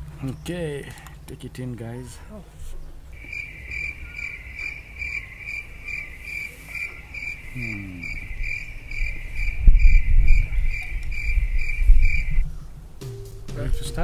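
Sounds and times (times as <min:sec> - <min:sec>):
cricket chirping: 0:03.2 - 0:12.4.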